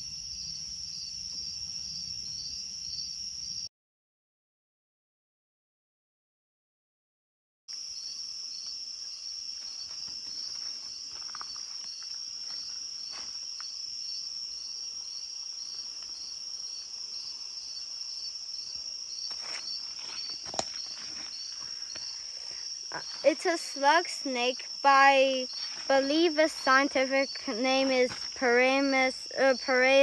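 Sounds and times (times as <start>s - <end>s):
insects trilling: 0.0s - 3.7s, 7.7s - 30.0s
pulsing insect call: 7.7s - 30.0s
leaves rustling: 9.4s - 13.7s, 19.3s - 29.8s.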